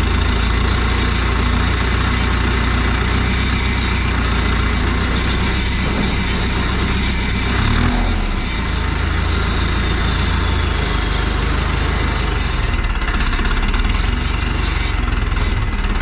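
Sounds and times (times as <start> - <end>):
tractor diesel engine running: 0.0 - 16.0.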